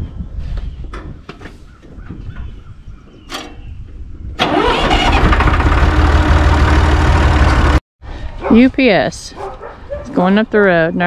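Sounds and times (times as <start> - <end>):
tractor engine rumbling: 3.1 - 7.8.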